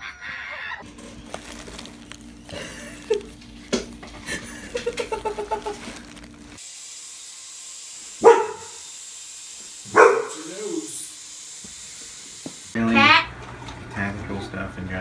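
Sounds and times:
faint crinkles: 0:00.8 - 0:06.6
toy helicopter high whine: 0:06.6 - 0:12.8
dog barking sharply: 0:08.2 - 0:08.8, 0:09.9 - 0:10.4.

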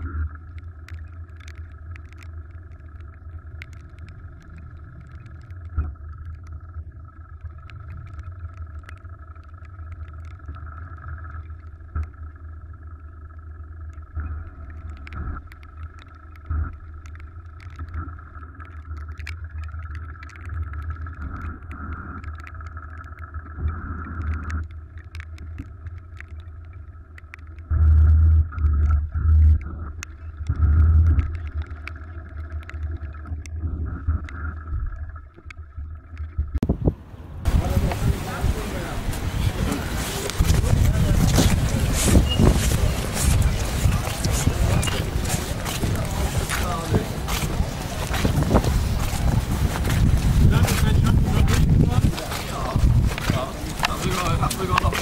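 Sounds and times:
small ticks: 0:00.0 - 0:36.6, 0:40.1 - 0:55.0
loud low buffets: 0:36.6 - 0:55.0
boat engine droning: 0:36.8 - 0:55.0.

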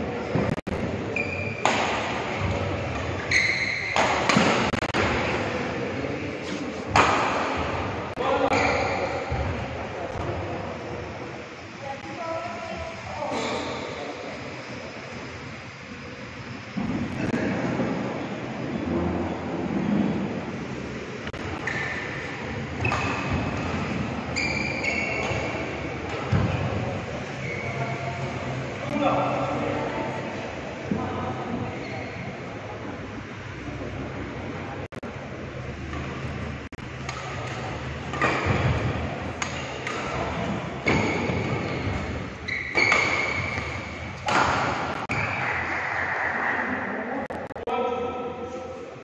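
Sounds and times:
shoes squeaking on court: 0:01.1 - 0:01.7, 0:02.4 - 0:04.7, 0:21.4 - 0:28.0, 0:37.0 - 0:44.4
racket hitting shuttlecock: 0:01.6 - 0:05.3, 0:06.9 - 0:07.8, 0:36.9 - 0:45.7.

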